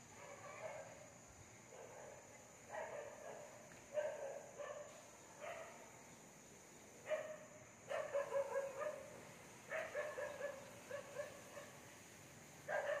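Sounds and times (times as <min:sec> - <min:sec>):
dog barking: 0:00.2 - 0:01.1, 0:01.7 - 0:05.9, 0:07.0 - 0:09.1, 0:09.7 - 0:11.8, 0:12.7 - 0:13.0.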